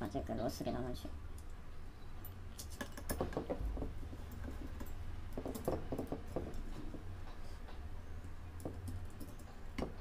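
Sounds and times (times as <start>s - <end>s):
clicks and taps of parts: 2.6s - 10.0s.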